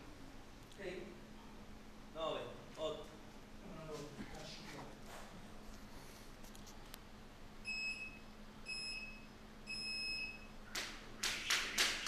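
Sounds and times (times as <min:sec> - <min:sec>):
timer beeps: 0:07.6 - 0:10.5.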